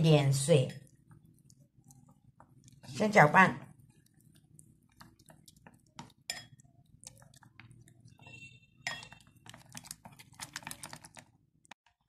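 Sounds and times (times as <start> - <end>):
chopsticks tapping ceramic bowl: 8.8 - 9.2.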